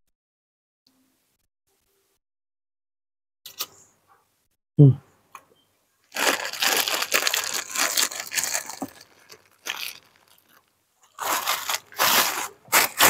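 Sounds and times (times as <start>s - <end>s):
plastic bag crinkling: 6.1s - 13.0s.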